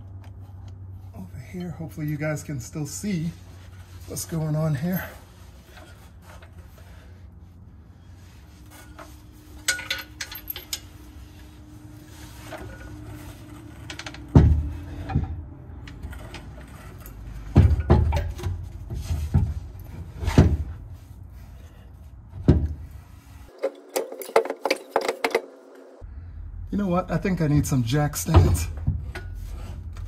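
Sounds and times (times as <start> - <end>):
heavy metal clunks and knocks: 13.6 - 20.8, 22.3 - 22.9.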